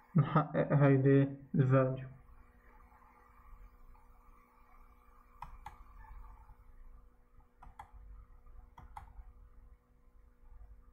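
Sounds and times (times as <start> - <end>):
faint steady hum: 0.0 - 10.9
computer mouse clicks: 5.2 - 6.4, 7.6 - 9.4.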